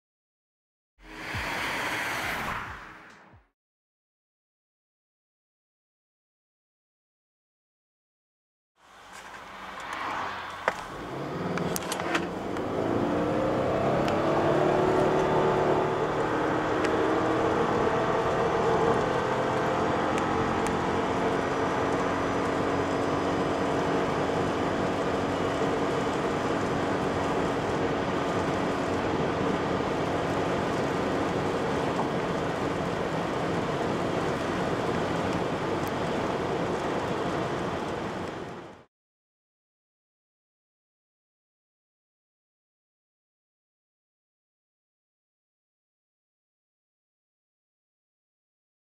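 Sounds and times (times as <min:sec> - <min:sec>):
car engine revving: 0:09.3 - 0:36.0.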